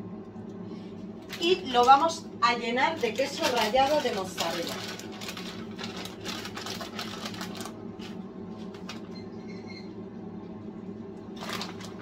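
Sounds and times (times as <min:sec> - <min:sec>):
steady low hum: 0:00.0 - 0:12.0
plastic bag crinkling: 0:01.2 - 0:09.1, 0:11.4 - 0:12.0
cheese sprinkling rustles: 0:02.8 - 0:09.0.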